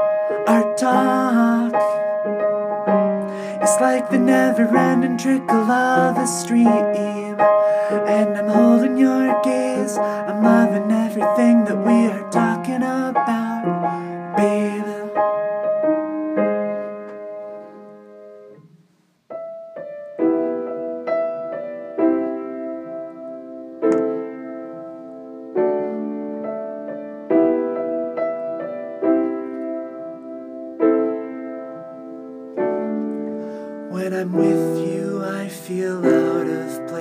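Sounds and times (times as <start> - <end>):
upright piano chords: 0.0 - 37.0
person singing: 0.1 - 2.2, 3.2 - 15.4, 33.8 - 37.0.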